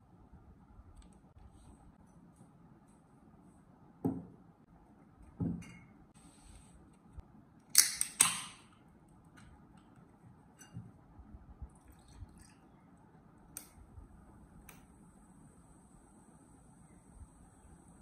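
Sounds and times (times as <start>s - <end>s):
can cracking open: 7.7s - 8.6s
faint fizz: 11.7s - 13.1s.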